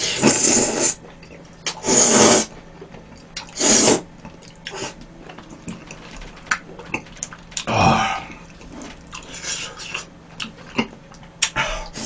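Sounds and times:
noodles slurped: 0.0s - 2.5s, 3.4s - 5.0s
faint chewing: 2.6s - 11.6s.

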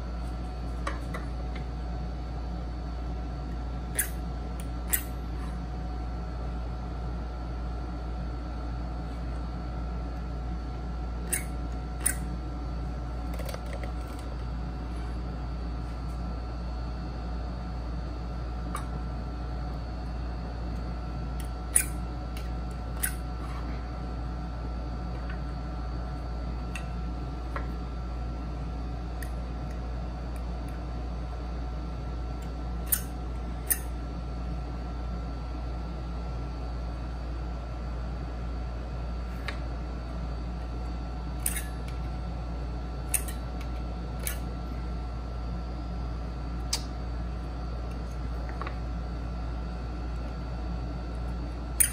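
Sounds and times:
low room hum: 0.0s - 51.9s.

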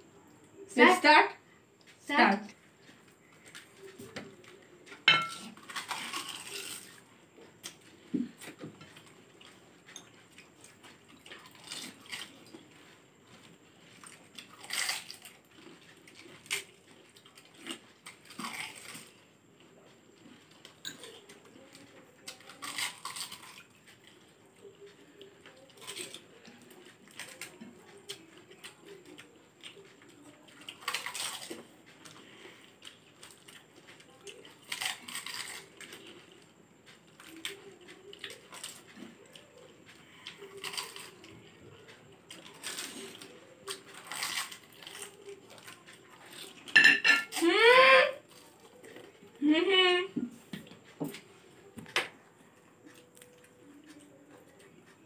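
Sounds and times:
crunching: 2.8s - 19.3s, 20.2s - 24.1s, 30.6s - 36.4s, 37.1s - 47.4s
clinks against glass bowls: 5.0s - 5.4s, 46.7s - 47.3s.

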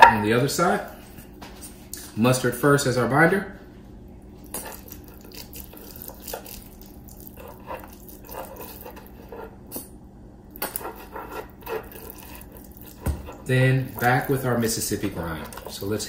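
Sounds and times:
wet squelches and sputters: 4.4s - 9.2s, 10.6s - 15.9s.

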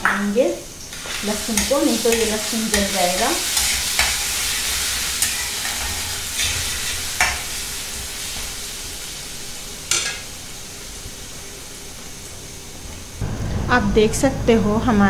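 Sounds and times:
garlic sizzling in hot oil: 0.1s - 13.2s
steel spatula scraping pan: 1.0s - 8.1s.

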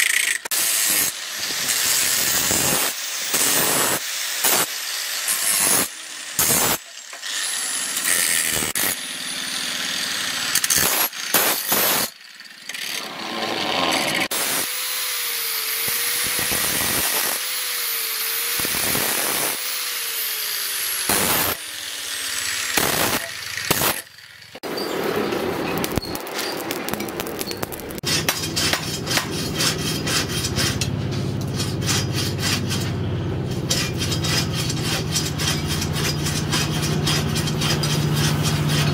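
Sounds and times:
angle grinder grinding steel: 0.0s - 38.9s
forge hum: 13.0s - 14.8s, 24.6s - 38.9s
crackling charcoal forge: 18.4s - 19.8s, 22.7s - 38.9s.

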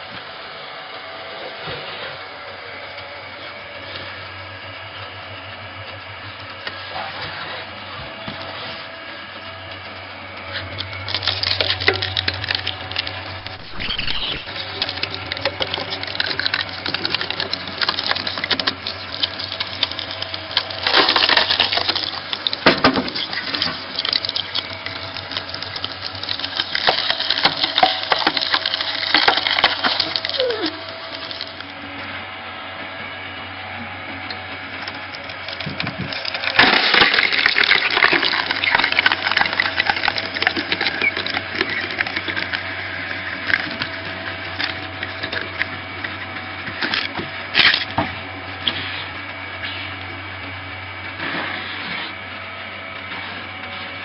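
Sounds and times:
log splitter motor humming: 0.0s - 54.0s
log cracking and splintering: 10.4s - 31.7s, 34.4s - 48.8s.

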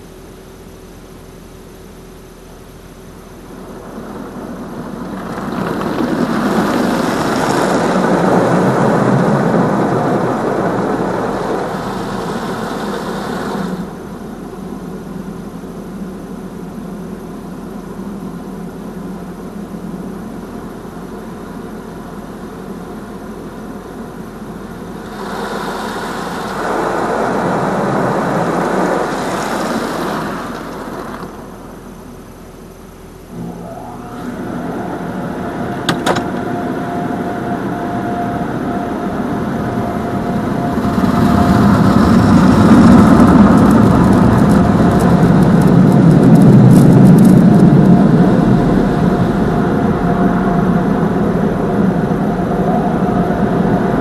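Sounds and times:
car wash machinery: 0.0s - 54.0s
water jets spraying on car: 3.0s - 15.2s, 21.2s - 32.6s.

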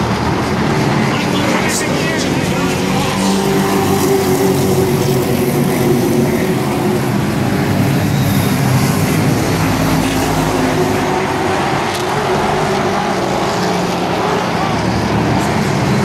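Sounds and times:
racing truck engines: 0.0s - 16.0s.

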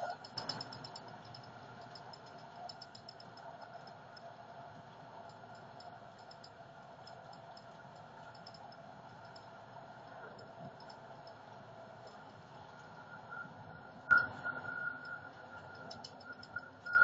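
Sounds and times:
faint high ticking: 0.0s - 4.3s, 5.2s - 17.0s.

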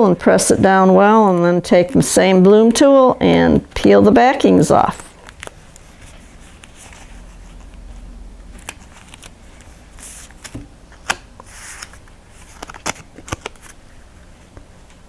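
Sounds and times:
paper rustling: 8.6s - 14.6s.

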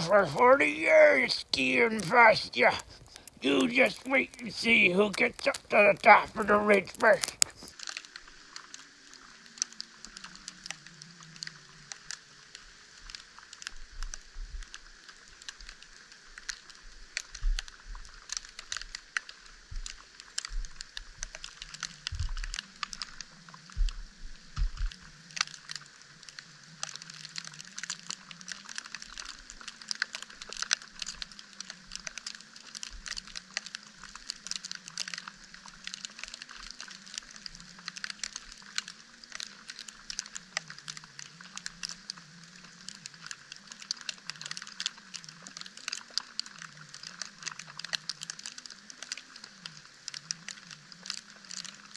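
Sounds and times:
snow ticking on camera: 0.0s - 7.8s, 17.4s - 25.7s.

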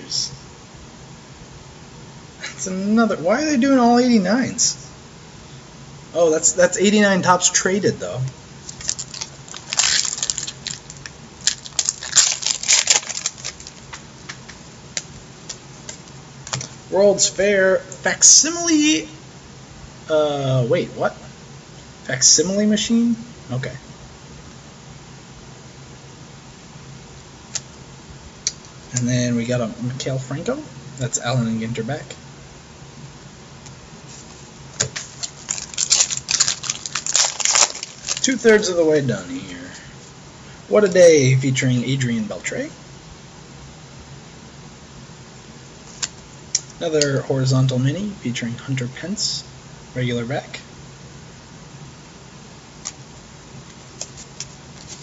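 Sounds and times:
paper card rustles: 8.6s - 14.5s, 34.1s - 38.4s, 53.9s - 55.0s
wrapper crinkling: 8.6s - 14.6s, 34.1s - 38.4s.

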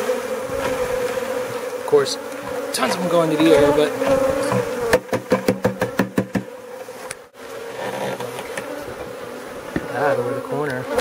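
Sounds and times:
honeybees buzzing: 0.0s - 11.0s
sharp knocks: 3.6s - 6.5s.

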